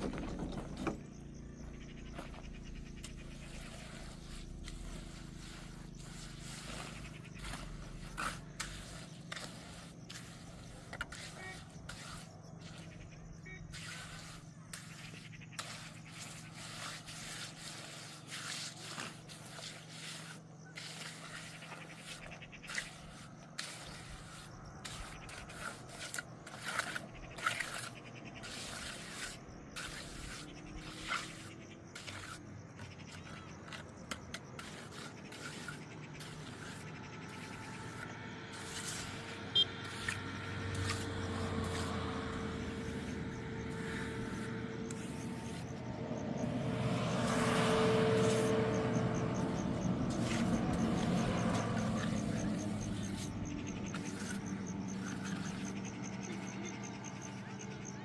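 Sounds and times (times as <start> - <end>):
scraping and knocking with tools: 0.0 - 13.0, 13.7 - 56.5.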